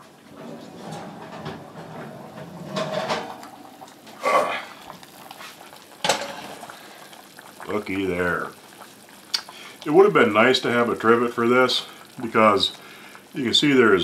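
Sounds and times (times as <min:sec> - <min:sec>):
cast iron pot clunking on metal: 0:00.8 - 0:04.2, 0:05.9 - 0:06.7.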